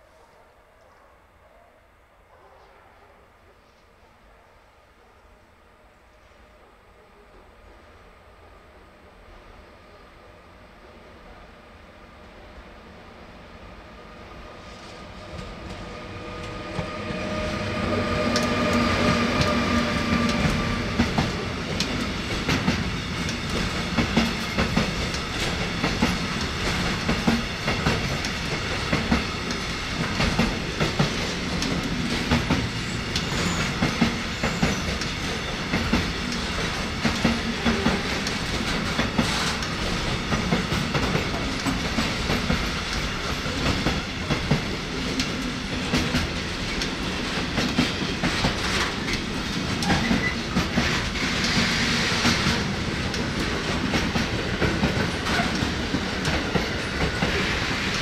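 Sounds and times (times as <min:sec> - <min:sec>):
electric locomotive humming: 0:07.7 - 0:58.0
train wheels clickety-clack: 0:14.7 - 0:58.0.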